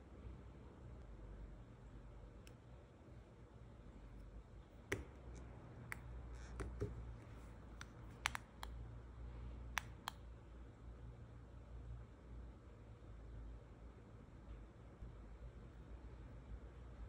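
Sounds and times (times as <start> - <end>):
faint low hum: 0.0 - 17.0
nail tips clicking and tapping: 4.8 - 7.1, 7.8 - 8.8, 9.7 - 10.2.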